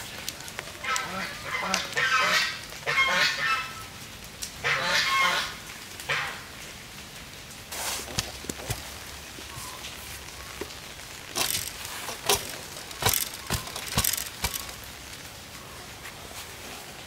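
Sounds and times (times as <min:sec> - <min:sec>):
sharp knocks and cracks: 0:10.6 - 0:14.9.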